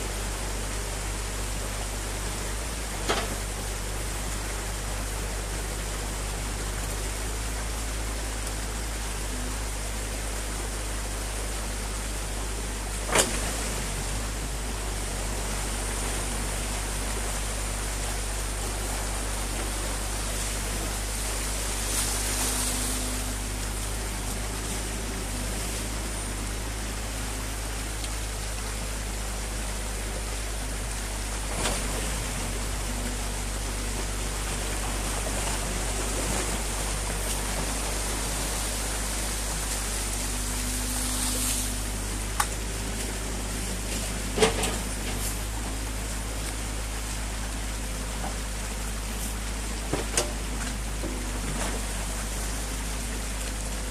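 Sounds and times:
excavator engine running: 0.0s - 53.9s
stream water rushing: 0.0s - 53.9s.

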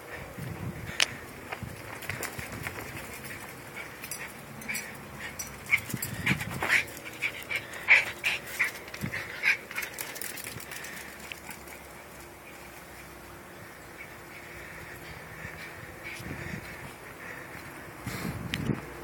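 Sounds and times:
dog yipping and panting: 3.0s - 10.2s.

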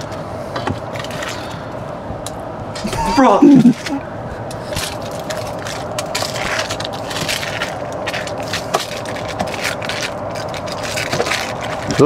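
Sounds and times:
foil crinkling: 4.6s - 12.0s
spatula scraping foil: 4.6s - 12.0s.

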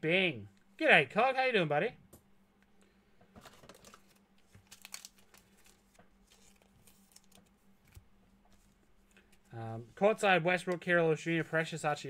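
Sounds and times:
low steady hum: 0.0s - 12.0s
card packs crinkling and clicking: 3.4s - 9.4s.

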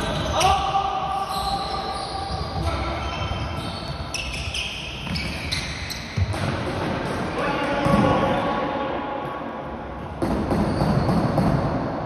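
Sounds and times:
shoes squeaking on court floor: 0.0s - 0.6s, 1.2s - 6.7s.

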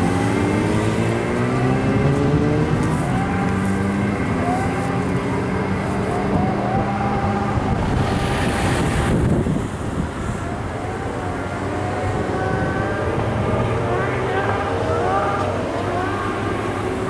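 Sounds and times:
engine revving during burnout: 0.0s - 17.0s
rush of noise: 0.0s - 17.0s.

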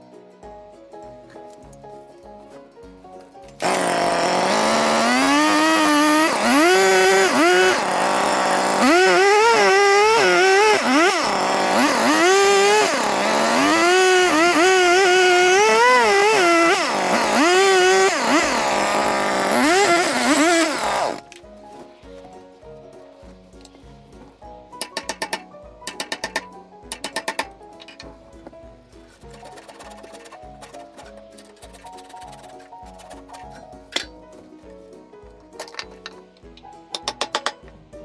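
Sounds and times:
chainsaw revving and cutting wood: 3.6s - 21.3s.

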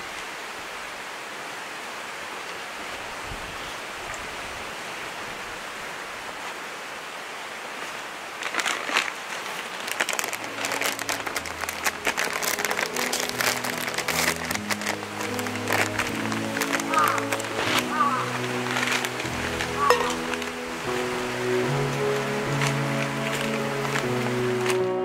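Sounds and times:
sharp clicks and crackles: 8.4s - 20.5s, 22.0s - 24.8s
background music: 10.2s - 25.0s.

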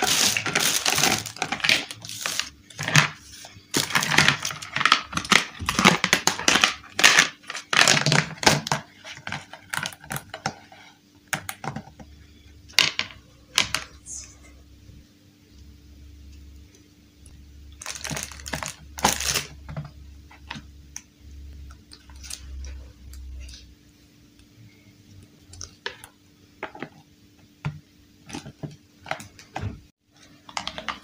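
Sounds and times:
plastic bag crinkling: 0.0s - 10.2s, 17.7s - 19.6s, 21.9s - 23.6s
plastic toy pieces clattering: 0.0s - 10.3s.

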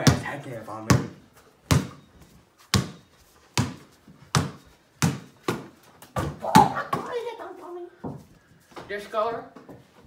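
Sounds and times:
basketball bouncing on hardwood floor: 0.0s - 2.1s, 2.7s - 7.0s.

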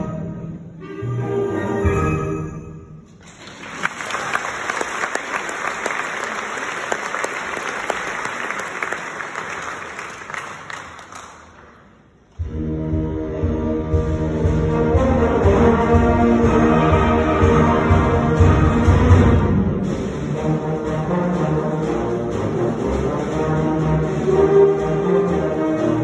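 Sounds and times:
audience applauding: 3.2s - 12.0s
concert band playing: 12.4s - 26.0s.

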